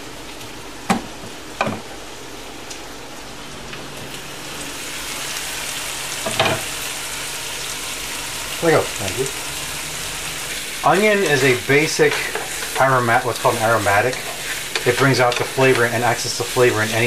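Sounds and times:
meat and onions sizzling in a pan: 4.1 - 17.0.

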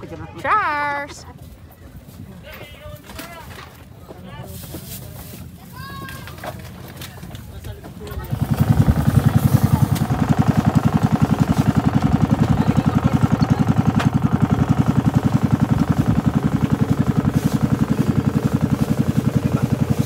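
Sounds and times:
boat engine thudding: 8.0 - 20.0.

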